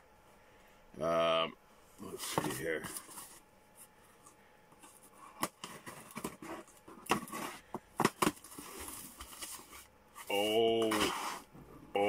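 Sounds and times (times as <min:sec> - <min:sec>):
cardboard knocks and rustles: 0:05.4 - 0:09.6.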